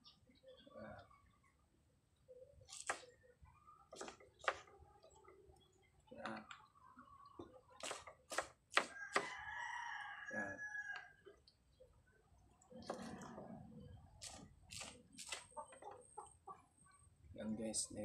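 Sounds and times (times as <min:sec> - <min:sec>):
knife chopping on wooden board: 0:02.7 - 0:03.0, 0:03.9 - 0:04.6, 0:07.8 - 0:09.3.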